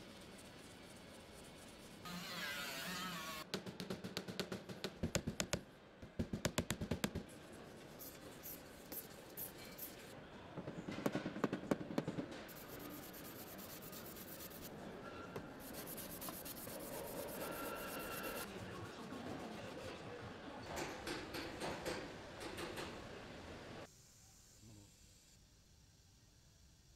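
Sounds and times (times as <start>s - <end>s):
gloved hand rubbing metal panel: 15.6s - 18.5s.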